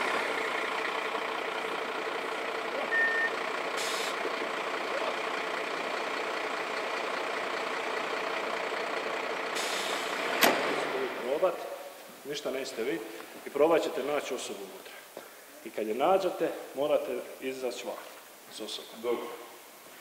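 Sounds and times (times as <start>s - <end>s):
engine running steadily: 0.0s - 11.4s
short high beep: 2.8s - 3.4s
brief hisses: 3.8s - 4.2s, 9.6s - 10.1s.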